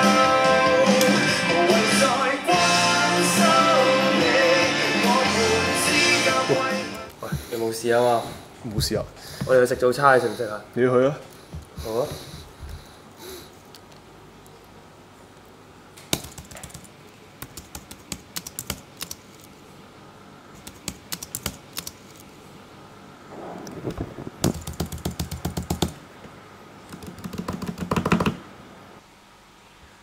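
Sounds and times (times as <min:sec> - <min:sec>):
computer keyboard typing: 0:16.1 - 0:19.5, 0:20.6 - 0:22.2, 0:24.4 - 0:26.0, 0:26.9 - 0:28.4.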